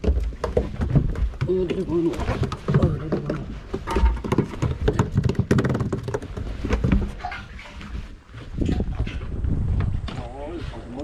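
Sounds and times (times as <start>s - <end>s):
knocks and clatter on boat deck: 0.0s - 8.0s.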